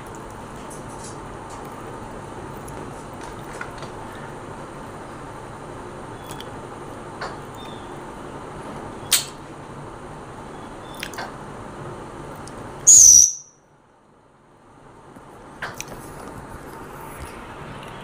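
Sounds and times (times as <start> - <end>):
parrot squawk: 12.9 - 13.5.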